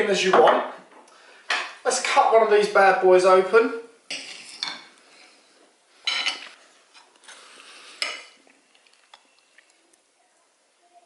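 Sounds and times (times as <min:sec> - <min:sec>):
cutlery scraping on glass plate: 0:04.1 - 0:04.9, 0:06.0 - 0:07.4, 0:08.0 - 0:08.4.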